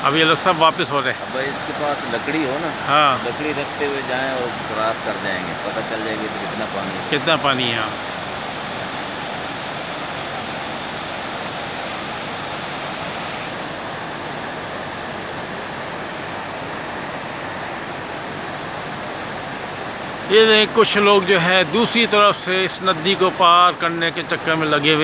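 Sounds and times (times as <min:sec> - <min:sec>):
flooded stream rushing: 0:00.0 - 0:25.0.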